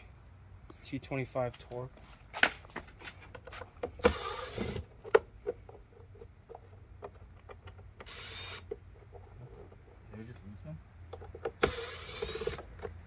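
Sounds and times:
cordless drill running: 4.0s - 4.8s, 8.0s - 8.7s, 11.6s - 12.6s.

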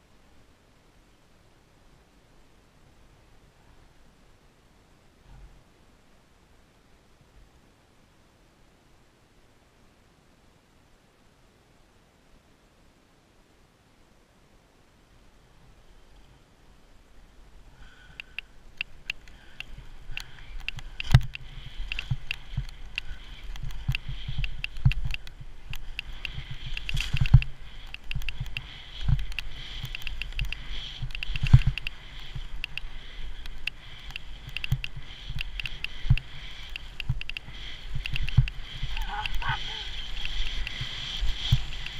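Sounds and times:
clicks and knocks from skis: 18.0s - 41.9s
skis scraping over snow: 19.2s - 41.9s.

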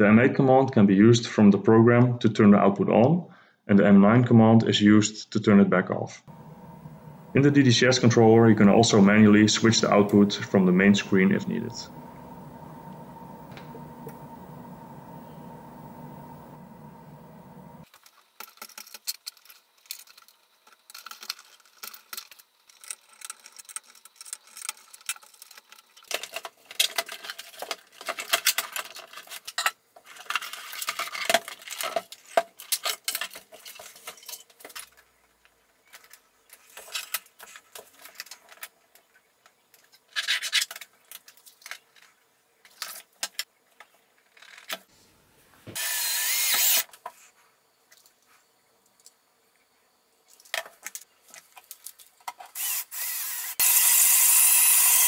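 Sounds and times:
loud steady noise: 6.3s - 17.8s.

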